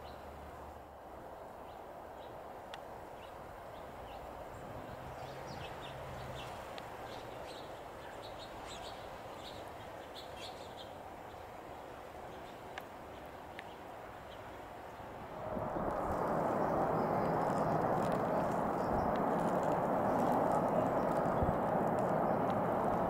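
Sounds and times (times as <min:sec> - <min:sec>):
small birds chirping: 0:12.3 - 0:23.0
low background rumble: 0:15.2 - 0:23.0.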